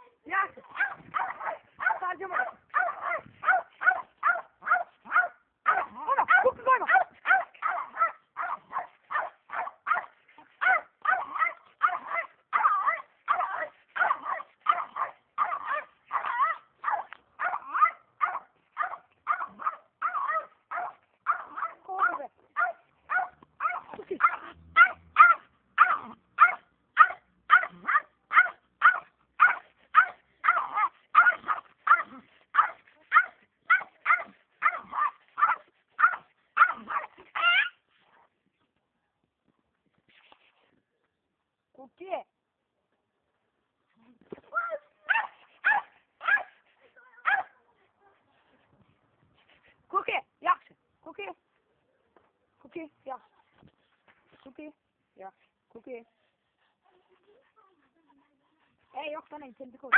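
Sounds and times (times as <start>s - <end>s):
small dog barking: 0.7s - 37.8s, 44.6s - 46.6s, 47.2s - 47.6s.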